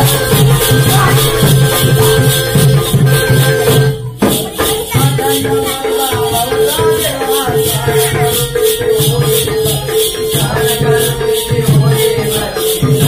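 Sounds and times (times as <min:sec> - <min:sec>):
shifting melody: 0:00.0 - 0:06.0
rattling jingle: 0:00.0 - 0:13.0.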